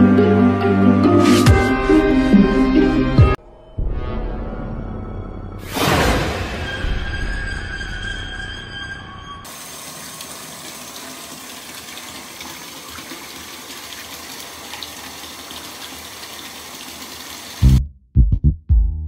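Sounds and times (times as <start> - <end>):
music: 0.0 - 9.4, 17.6 - 19.0
bathtub filling from tap: 9.5 - 17.8.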